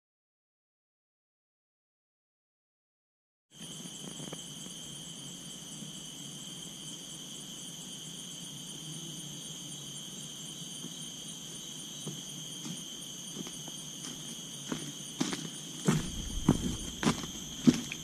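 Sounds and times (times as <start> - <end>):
insect chorus: 3.6 - 18.0
footsteps on dry leaves: 15.9 - 18.0.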